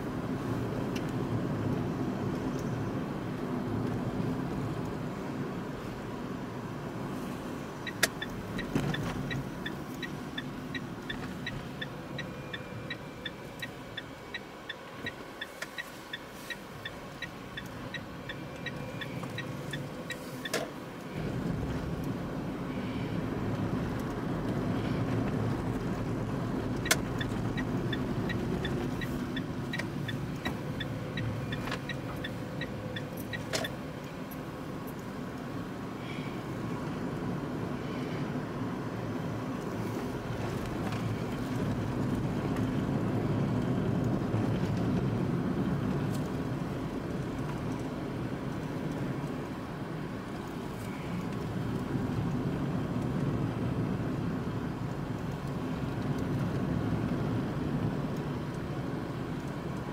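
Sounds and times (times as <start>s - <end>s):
tyre and road noise: 0.0s - 59.9s
turn signal ticking: 7.6s - 22.2s, 23.2s - 35.7s, 39.3s - 59.9s.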